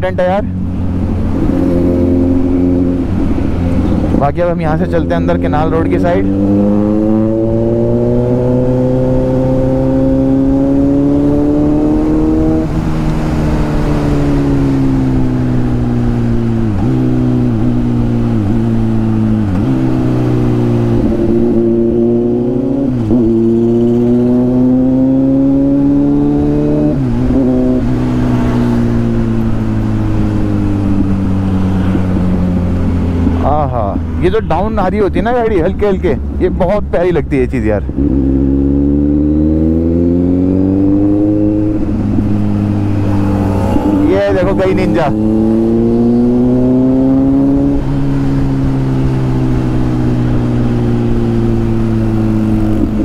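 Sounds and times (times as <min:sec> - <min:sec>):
motorcycle engine revving: 0:00.0 - 0:36.4, 0:37.8 - 0:53.0.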